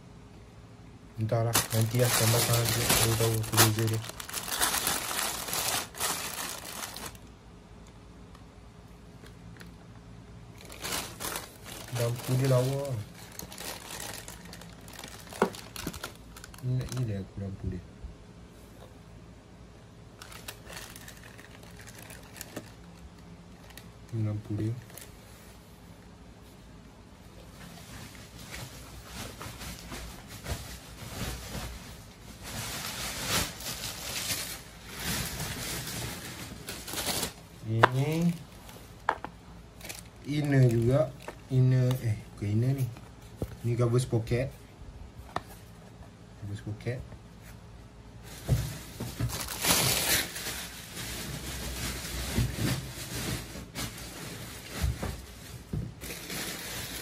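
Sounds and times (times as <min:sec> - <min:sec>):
plastic packaging rustling: 0:01.2 - 0:07.4, 0:10.5 - 0:17.6, 0:20.2 - 0:25.5, 0:27.6 - 0:44.5, 0:48.2 - 0:57.0.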